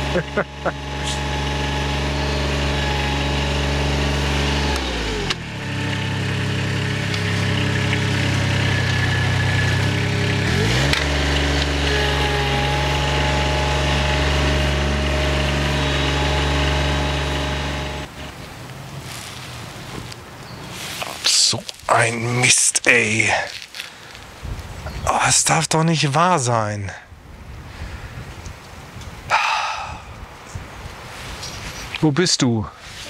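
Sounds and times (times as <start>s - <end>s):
mower diesel engine running: 0.0s - 18.4s, 19.1s - 24.2s.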